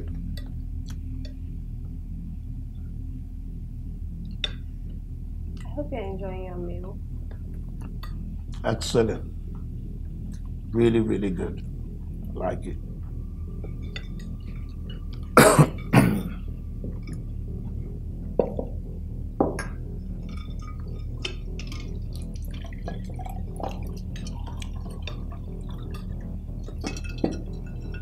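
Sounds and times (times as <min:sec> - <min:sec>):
dripping ticks: 0:13.0 - 0:15.4, 0:19.7 - 0:28.0
liquid pouring into a glass: 0:20.4 - 0:28.0.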